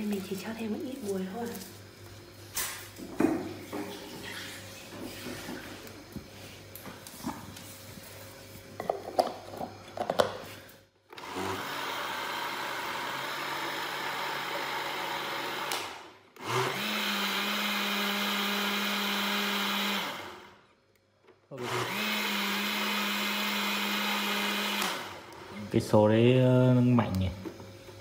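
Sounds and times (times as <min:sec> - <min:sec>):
blender motor running: 0:11.1 - 0:20.6, 0:21.5 - 0:28.0.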